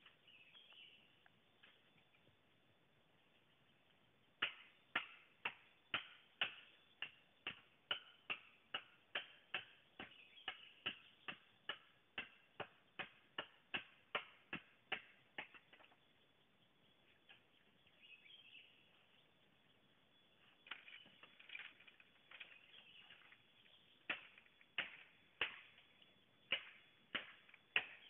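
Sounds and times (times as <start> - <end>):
blade chopping bamboo: 26.5 - 28.0.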